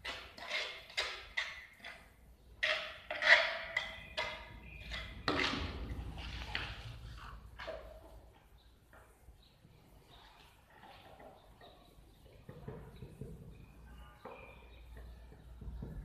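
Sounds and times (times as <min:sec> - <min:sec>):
steel trowel scraping tile: 0:00.0 - 0:07.9.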